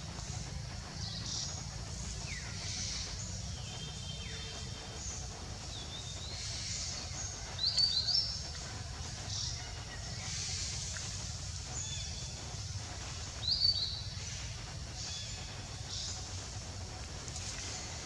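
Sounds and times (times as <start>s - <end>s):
steady low rumble: 0.0s - 18.0s
small birds chirping and whistling: 11.8s - 14.1s.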